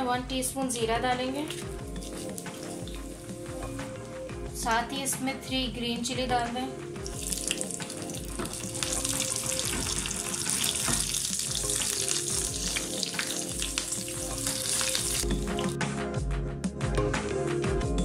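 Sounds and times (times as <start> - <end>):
hot oil sizzling and crackling: 1.4 - 4.4, 7.0 - 15.8.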